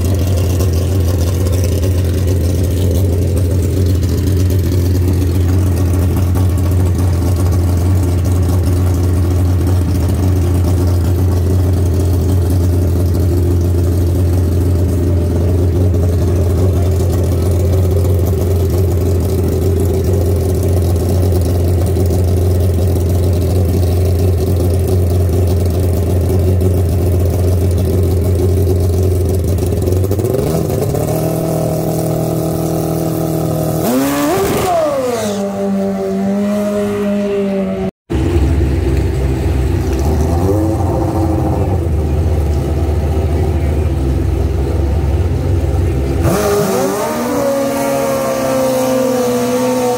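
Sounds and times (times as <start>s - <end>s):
motorcycle engine idling and revving: 0.0s - 49.9s.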